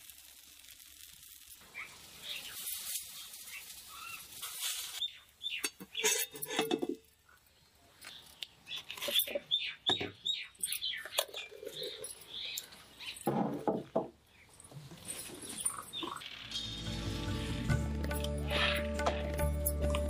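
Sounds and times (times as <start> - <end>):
thick curry boiling with pops: 0.0 - 10.3
clay lid clinking on iron pot: 5.6 - 7.1.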